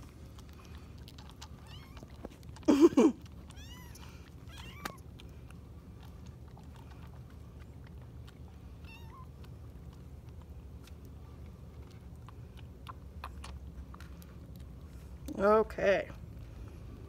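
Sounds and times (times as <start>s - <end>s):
kitten mewing: 1.6s - 5.1s.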